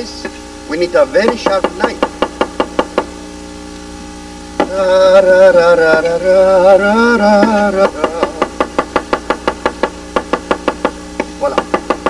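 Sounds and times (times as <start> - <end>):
man singing: 4.6 - 8.6
knife chopping on wooden board: 7.4 - 12.0.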